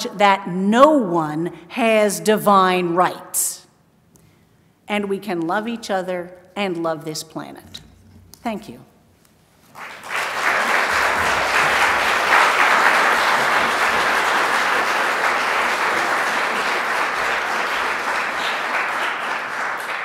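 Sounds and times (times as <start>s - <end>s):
audience applauding: 9.6s - 20.0s.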